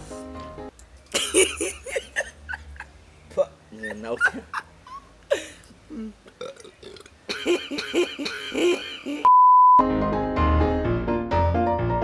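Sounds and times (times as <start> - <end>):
long belch: 6.3 - 7.9
piano music: 9.8 - 12.0.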